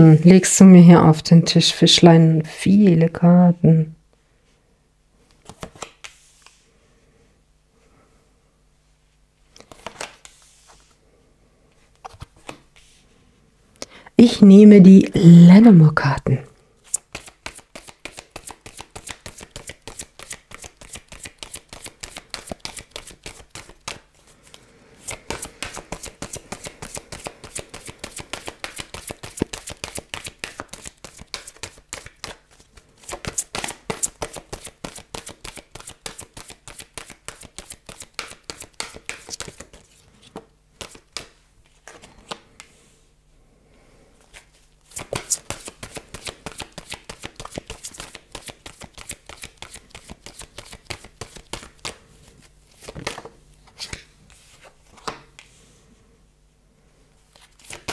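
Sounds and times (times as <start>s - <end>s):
cards being shuffled: 5.3s - 6.6s, 9.5s - 10.9s, 12.0s - 13.0s, 16.8s - 42.7s, 44.2s - 55.5s, 57.3s - 57.9s.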